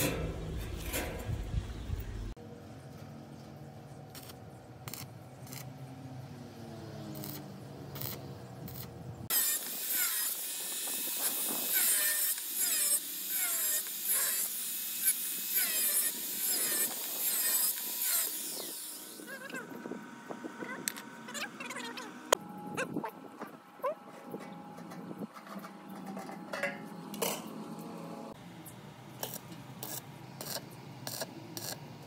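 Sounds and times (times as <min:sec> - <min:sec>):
angle grinder cutting steel: 0:09.3 - 0:19.6.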